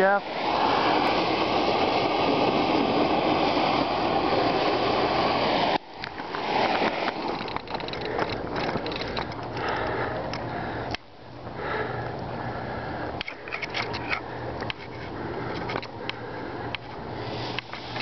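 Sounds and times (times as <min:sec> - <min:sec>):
gas torch hissing: 0:00.0 - 0:10.2, 0:17.1 - 0:18.0
burning thermite hissing: 0:00.0 - 0:10.9, 0:11.5 - 0:18.0
sharp crackles and clicks: 0:05.7 - 0:11.1.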